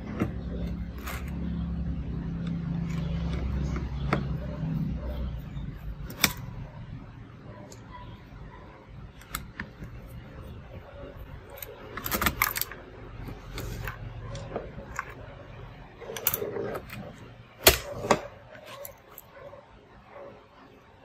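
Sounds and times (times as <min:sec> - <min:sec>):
low engine-like hum: 0:00.0 - 0:09.2.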